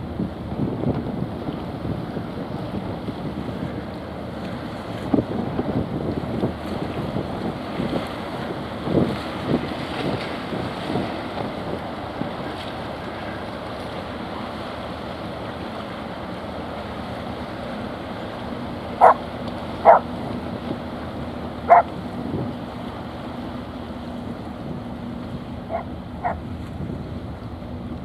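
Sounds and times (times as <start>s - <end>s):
wind noise on microphone: 0.0s - 13.4s, 19.8s - 28.0s.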